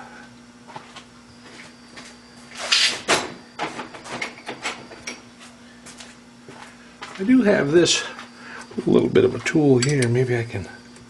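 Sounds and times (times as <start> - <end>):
low shop hum: 0.0 - 11.0
metal hand tools clicking and scraping: 9.8 - 10.2.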